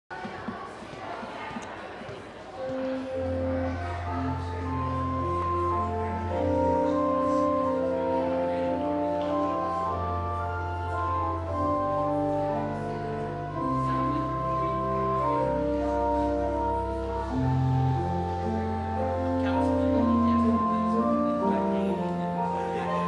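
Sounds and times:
organ playing held chords: 0:02.6 - 0:23.0.

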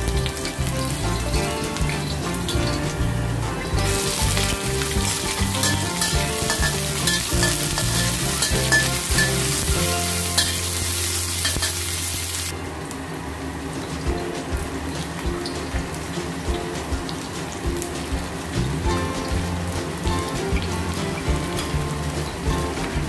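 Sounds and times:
food sizzling in hot oil: 0:03.7 - 0:12.6
metal spatula scraping a wok: 0:03.9 - 0:12.5.

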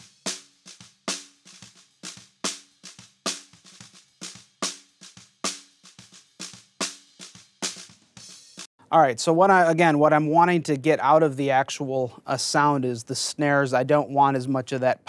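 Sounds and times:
snare drum groove: 0:00.0 - 0:08.7.

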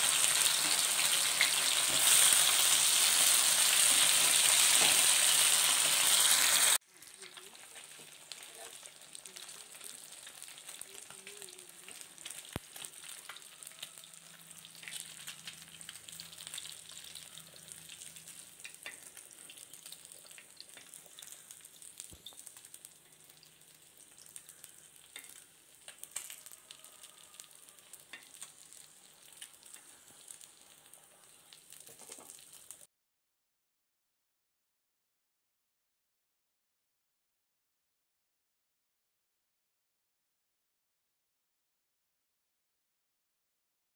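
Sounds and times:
fish sizzling in oil: 0:00.0 - 0:32.9.

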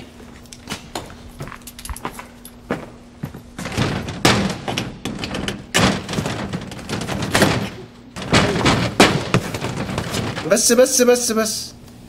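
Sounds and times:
door rattling and thumping: 0:03.2 - 0:10.9.

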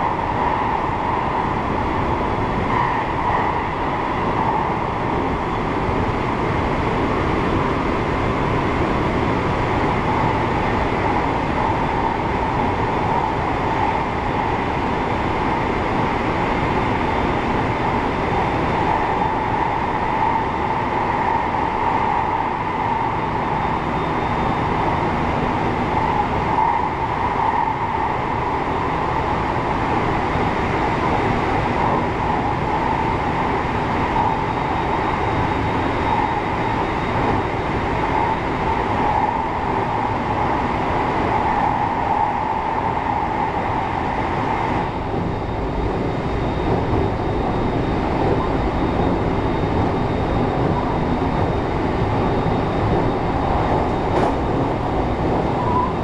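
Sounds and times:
wheels rumbling on rail: 0:00.0 - 0:56.0
faint constant high tone: 0:09.8 - 0:56.0.

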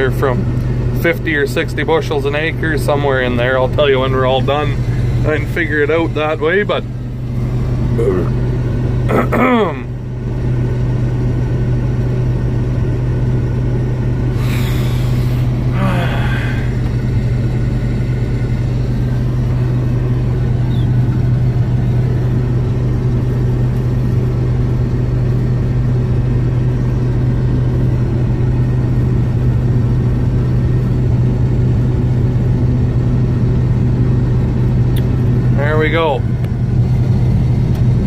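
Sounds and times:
combine harvester droning: 0:00.0 - 0:38.0
unloading auger humming: 0:02.1 - 0:10.6, 0:14.0 - 0:25.5.

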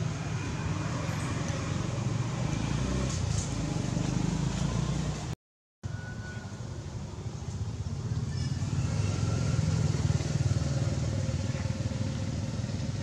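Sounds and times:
vehicle engine droning: 0:07.8 - 0:13.0.

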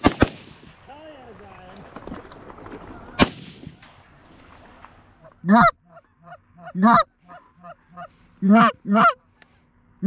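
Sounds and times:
sharp crack: 0:00.0 - 0:05.3
goose honking: 0:05.2 - 0:09.3.

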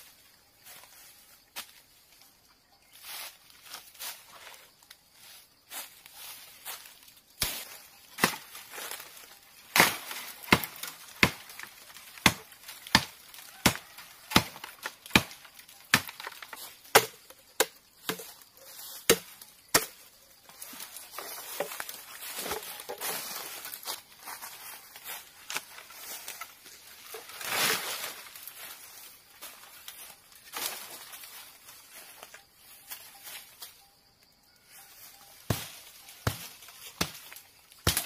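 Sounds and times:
leaves and stems rustling: 0:00.0 - 0:38.0
machete chopping bamboo: 0:07.4 - 0:20.1, 0:35.4 - 0:38.0.

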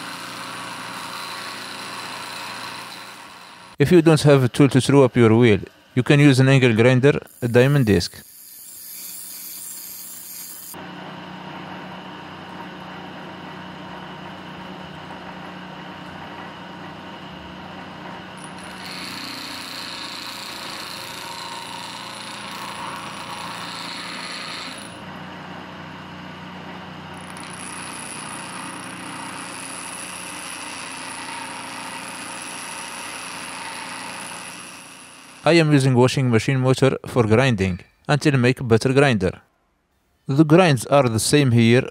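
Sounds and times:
grinder motor hum: 0:00.0 - 0:35.5
steel grinding on wheel: 0:07.2 - 0:10.8, 0:18.4 - 0:25.0.

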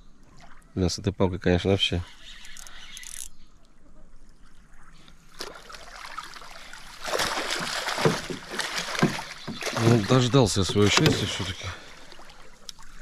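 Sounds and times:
water splashing and dripping: 0:04.2 - 0:13.0.

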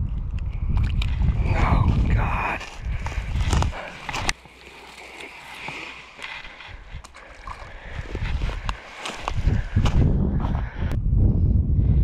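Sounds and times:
wind buffeting microphone: 0:00.0 - 0:04.6, 0:05.3 - 0:12.0
handling rustling and clicks: 0:02.6 - 0:07.8.

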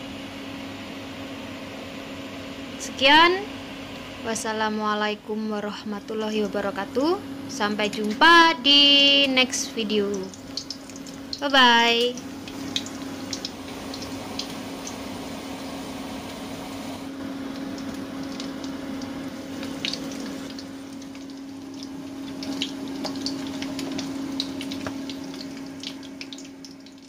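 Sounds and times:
steady low hum: 0:00.0 - 0:27.0
hot oil sizzling and popping: 0:09.5 - 0:27.0.

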